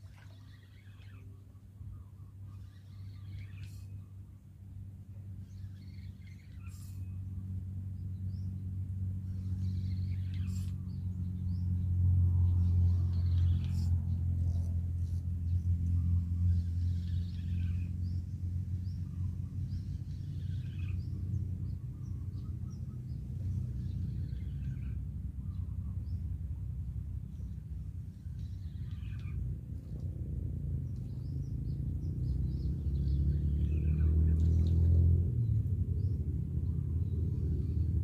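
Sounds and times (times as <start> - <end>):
low rumble: 1.0 - 38.0.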